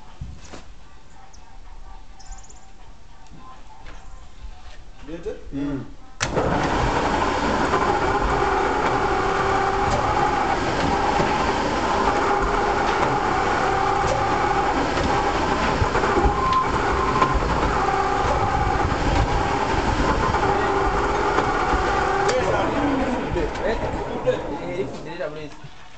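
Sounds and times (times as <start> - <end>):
machine running with hum: 6.2 - 25.0.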